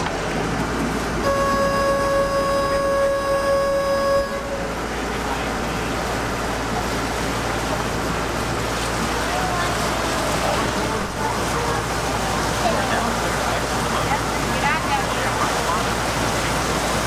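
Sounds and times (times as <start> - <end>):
boat engine rumble: 0.0 - 17.0
boat horn blast: 1.2 - 5.8.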